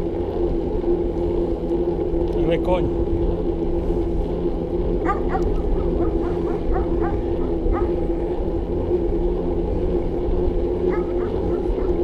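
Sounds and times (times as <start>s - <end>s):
low rumble and hum: 0.0s - 12.0s
animal yelping: 5.0s - 8.0s, 10.9s - 12.0s.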